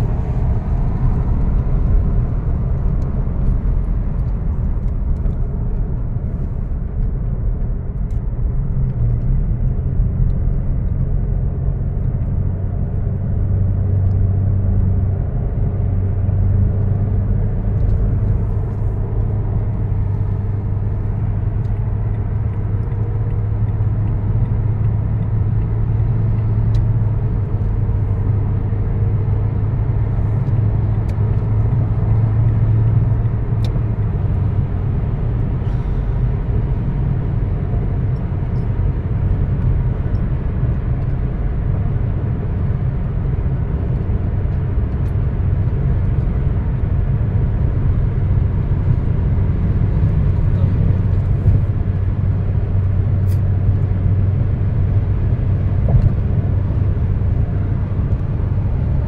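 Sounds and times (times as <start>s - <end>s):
droning hum: 0.0s - 7.2s
car road and engine rumble: 0.0s - 59.0s.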